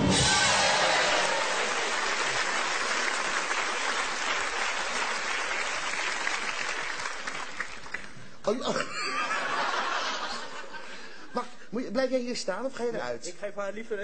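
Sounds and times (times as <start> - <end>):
studio audience applauding: 0.1 - 8.4.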